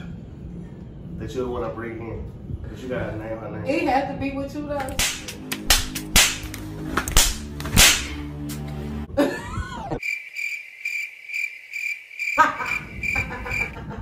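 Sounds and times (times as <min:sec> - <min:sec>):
sharp cracks: 0:04.9 - 0:08.3
cricket chirp sound effect: 0:10.0 - 0:13.8.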